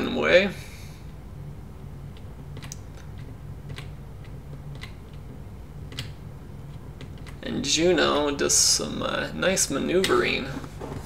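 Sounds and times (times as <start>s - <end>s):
low steady hum: 0.0s - 11.0s
computer keyboard clicks: 2.1s - 5.3s, 5.9s - 6.2s.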